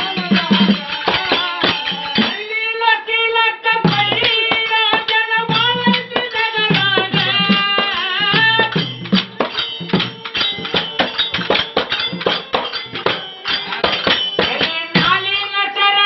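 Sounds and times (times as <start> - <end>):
hand cymbals clinking: 0.0 - 2.6, 3.9 - 15.5
person singing: 0.0 - 9.0, 14.4 - 16.0
tabla drums fast rhythm: 0.0 - 16.0.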